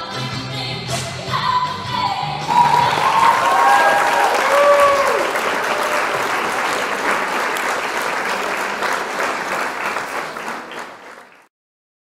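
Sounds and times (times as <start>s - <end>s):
audience applause: 2.5s - 11.5s.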